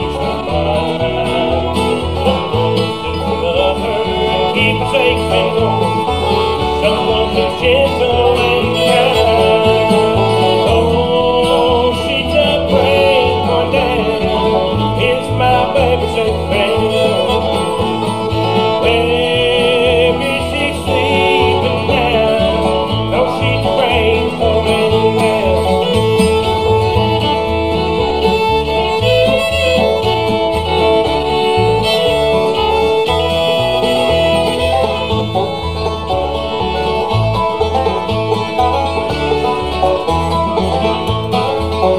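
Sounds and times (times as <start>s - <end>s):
banjo: 0.0s - 41.9s
bass notes: 0.0s - 41.9s
fiddle: 0.0s - 41.9s
strummed acoustic guitar: 0.0s - 41.9s.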